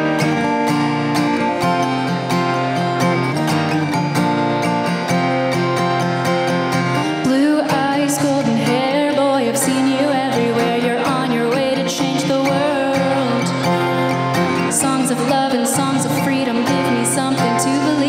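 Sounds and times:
acoustic guitar playing: 0:00.0 - 0:18.0
woman singing: 0:07.0 - 0:18.0.

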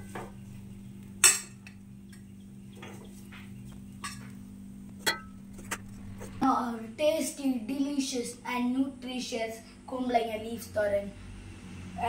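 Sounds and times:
low hum: 0:00.0 - 0:07.0
metal utensil scraping and clinking: 0:05.0 - 0:06.4.

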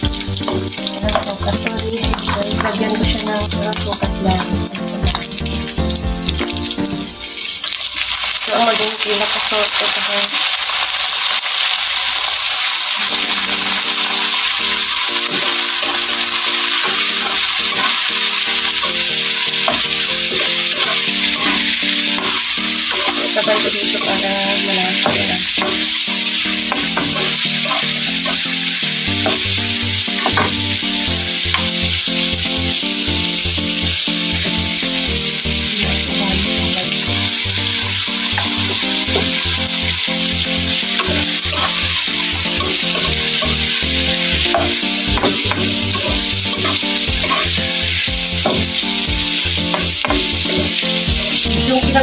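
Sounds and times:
background music: 0:00.0 - 0:07.7, 0:14.9 - 0:52.0
meat sizzling in a pan: 0:00.0 - 0:52.0
metal ladle stirring: 0:15.2 - 0:24.1, 0:44.4 - 0:47.8.

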